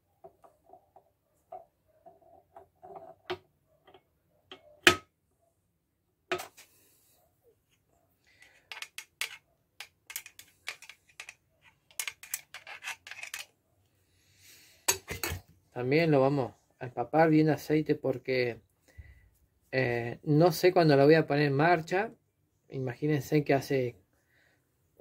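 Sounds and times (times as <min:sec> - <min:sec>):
metal parts and tools clicking: 0:08.4 - 0:13.5.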